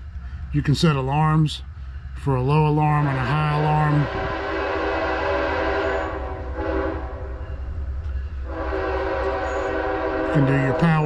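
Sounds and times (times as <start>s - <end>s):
train rumbling: 0.0s - 11.0s
train horn blasts: 2.9s - 7.6s, 8.4s - 11.0s.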